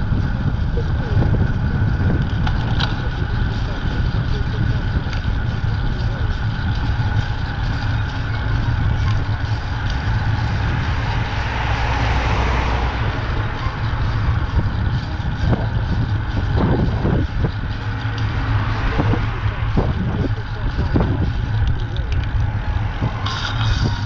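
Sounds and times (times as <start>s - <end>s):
wind rumble on microphone: 0.0s - 24.0s
motor vehicle passing: 6.8s - 24.0s.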